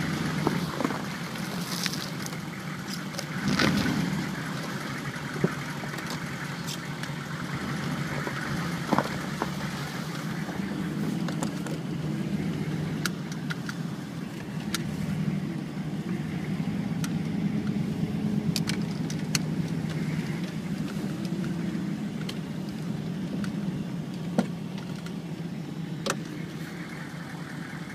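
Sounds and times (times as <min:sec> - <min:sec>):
tyre and road noise: 0:00.0 - 0:27.9
vehicle engine running: 0:00.0 - 0:27.9
sharp clicks and ticks: 0:00.4 - 0:09.6, 0:12.5 - 0:14.9, 0:18.4 - 0:25.2.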